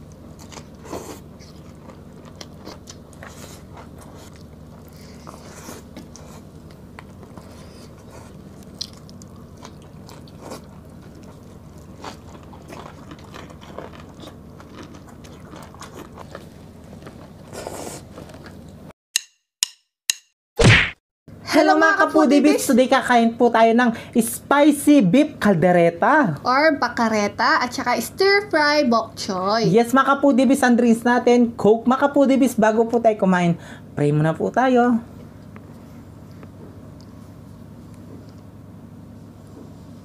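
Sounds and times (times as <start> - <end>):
people chewing food: 0.0 - 18.9, 35.2 - 38.6
steady low hum: 0.0 - 18.9, 21.3 - 40.0.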